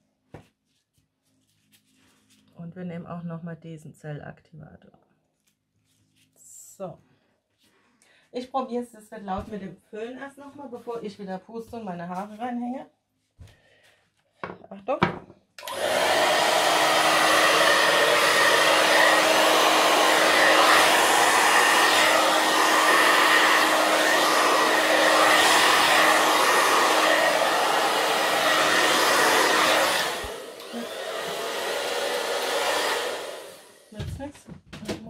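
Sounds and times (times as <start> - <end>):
hair dryer blowing: 15.6 - 34.3.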